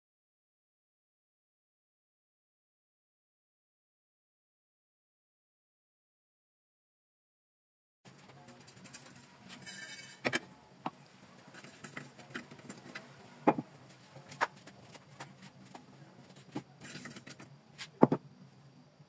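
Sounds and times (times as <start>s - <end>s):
kitchen utensils knocking and clinking: 8.6s - 10.4s, 16.8s - 18.2s.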